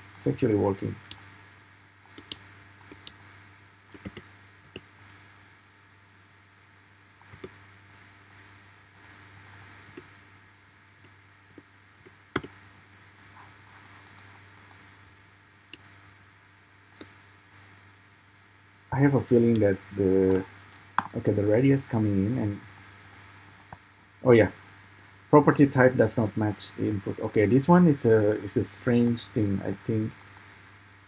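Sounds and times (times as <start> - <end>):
faint low hum: 0.0 - 31.0
mouse and keyboard clicks: 2.0 - 3.3, 3.9 - 5.2, 7.2 - 10.1, 11.0 - 14.8.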